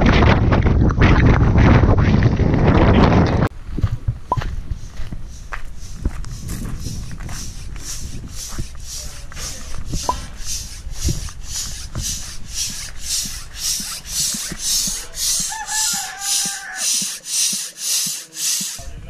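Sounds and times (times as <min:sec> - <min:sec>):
repeating rasping hiss: 0:04.8 - 0:18.9
rooster crowing: 0:15.1 - 0:17.2.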